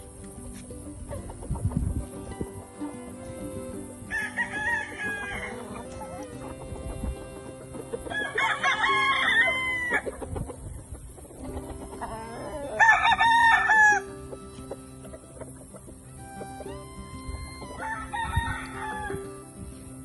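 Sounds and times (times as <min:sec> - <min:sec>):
roosters crowing: 0:02.4 - 0:20.0.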